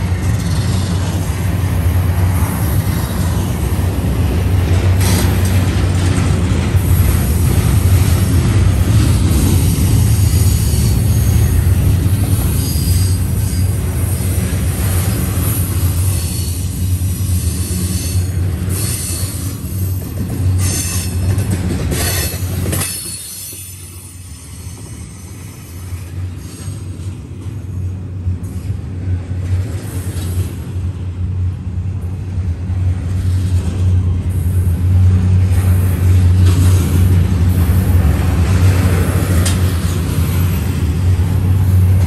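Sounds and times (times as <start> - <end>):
train wheels rumbling on rail: 0.0 - 42.0
wheel squeal and screeches: 12.3 - 13.8.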